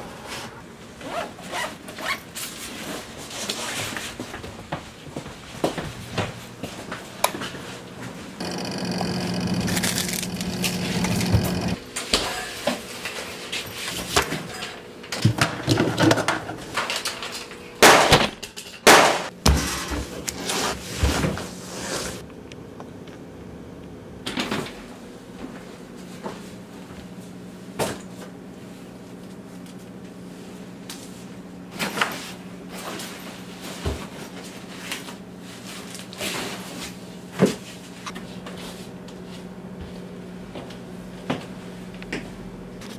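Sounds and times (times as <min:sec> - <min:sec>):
steady low hum: 0:05.7 - 0:11.9.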